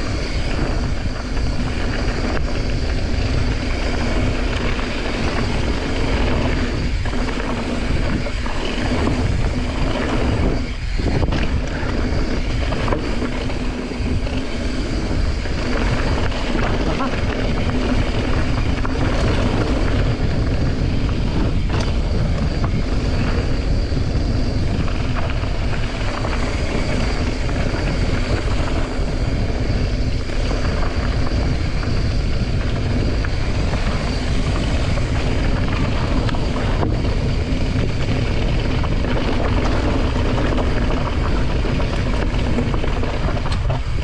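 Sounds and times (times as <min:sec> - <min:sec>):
tyres rattling over loose stones: 0:00.0 - 0:44.0
wind rush over microphone: 0:00.0 - 0:44.0.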